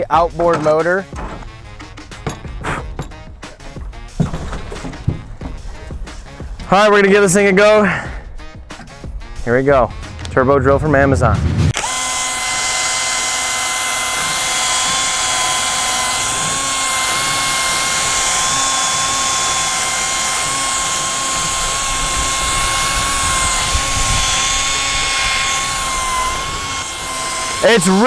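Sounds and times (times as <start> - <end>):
cordless drill whining: 11.7 - 28.0.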